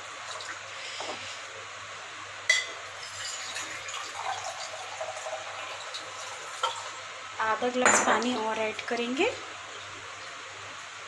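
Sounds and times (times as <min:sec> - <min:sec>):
water pouring into bowl: 0:03.1 - 0:07.0.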